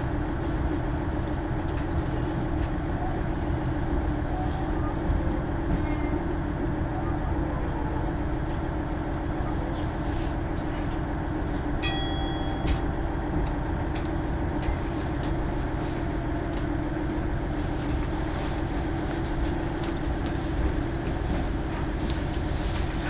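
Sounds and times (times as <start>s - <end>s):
rail yard rumble: 0.0s - 23.0s
high electronic beeps: 10.6s - 12.7s.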